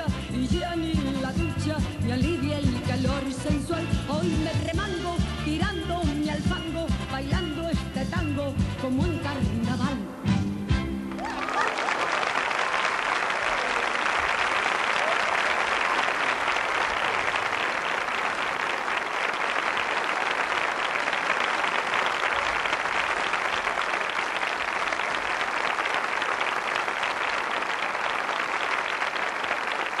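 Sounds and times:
audience applauding: 0:11.1 - 0:30.0.

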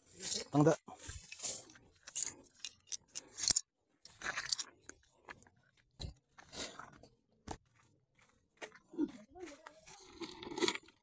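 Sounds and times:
footsteps on sandy path: 0:06.3 - 0:10.2.

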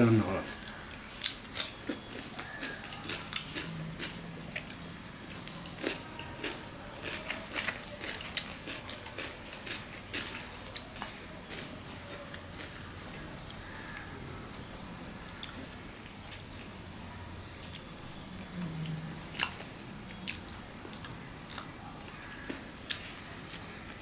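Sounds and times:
chewing and crunching cucumber: 0:00.4 - 0:14.0, 0:18.5 - 0:24.0.

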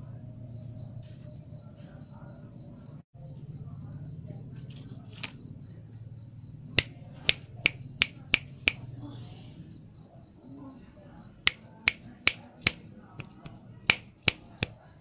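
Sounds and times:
loud sharp snaps: 0:06.8 - 0:08.8.

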